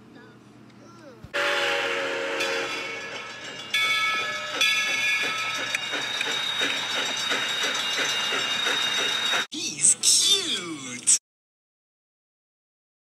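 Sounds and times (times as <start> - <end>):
steam locomotive whistle: 1.4 - 3.3
locomotive chuffing: 1.4 - 9.5
steam hissing: 3.8 - 9.5.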